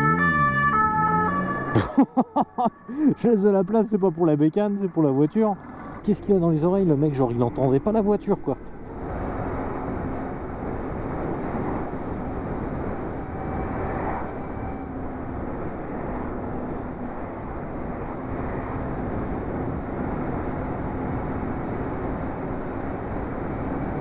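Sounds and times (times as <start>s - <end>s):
wind noise while riding: 8.6s - 24.0s.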